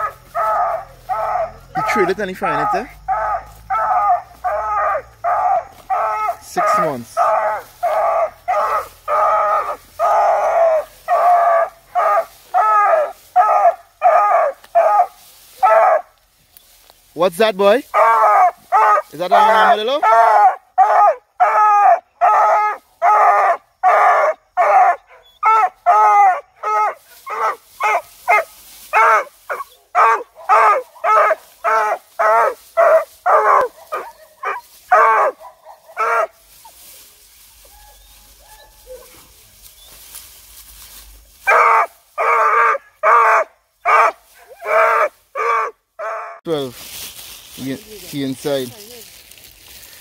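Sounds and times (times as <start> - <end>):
dog barking rapidly: 17.9 - 23.2, 23.8 - 36.3, 41.5 - 45.7.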